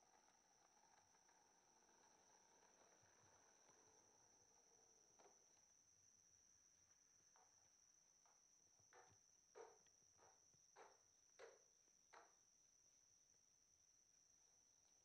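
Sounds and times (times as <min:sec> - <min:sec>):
steady high-pitched hum: 0:00.0 - 0:15.0.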